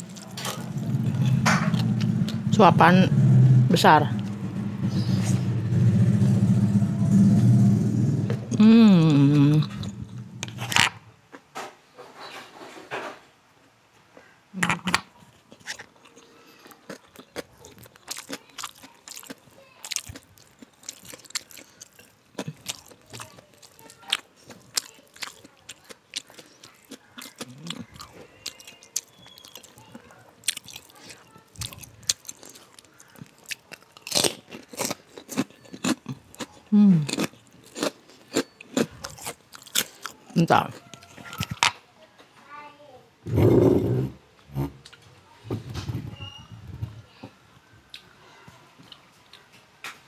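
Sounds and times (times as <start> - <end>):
woman chewing food: 0.0 - 2.5, 8.2 - 11.5, 14.8 - 41.8.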